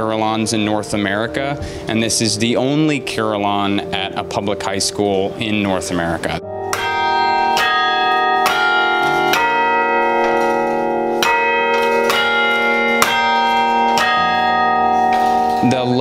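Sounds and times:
carillon bells playing a slow tune: 0:06.4 - 0:16.0.

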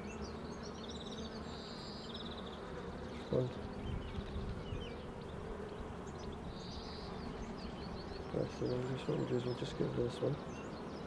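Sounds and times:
honeybees buzzing: 0:00.0 - 0:11.0.

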